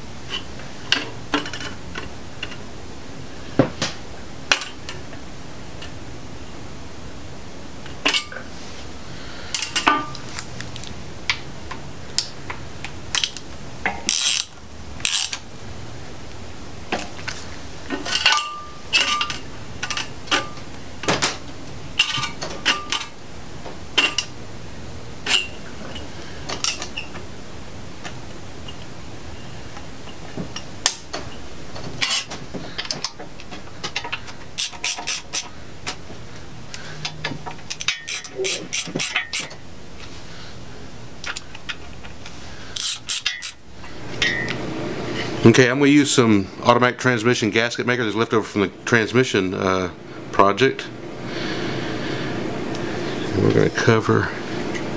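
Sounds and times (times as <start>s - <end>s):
ratchet clicking: 14.1s - 15.4s, 37.7s - 39.5s, 42.8s - 43.6s.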